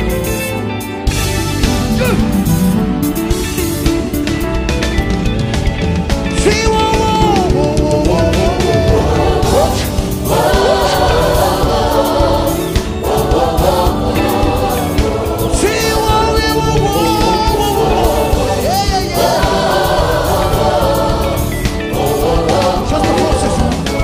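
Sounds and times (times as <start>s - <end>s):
band playing gospel music: 0.0s - 24.0s
man singing lead: 6.3s - 11.2s, 14.2s - 20.0s, 22.0s - 24.0s
choir singing: 6.8s - 24.0s.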